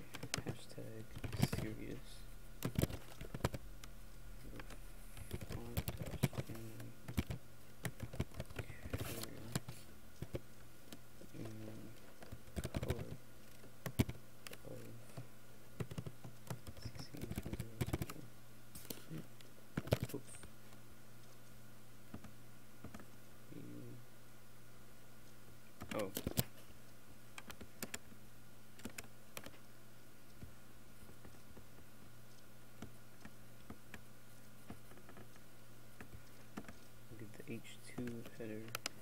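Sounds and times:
faint low hum: 0.0s - 39.0s
keyboard typing clicks: 4.6s - 11.6s, 12.2s - 14.6s, 15.8s - 18.2s.

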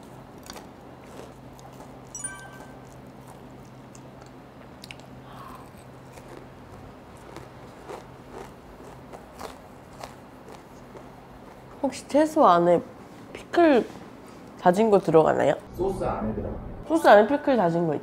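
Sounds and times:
chewing crispy food: 0.0s - 11.7s
steady low hum: 0.0s - 17.5s.

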